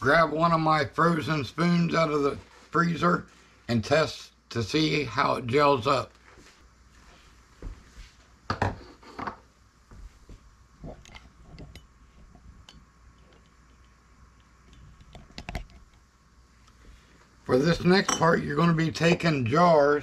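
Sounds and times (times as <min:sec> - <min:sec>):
faint room noise: 0:00.0 - 0:20.0.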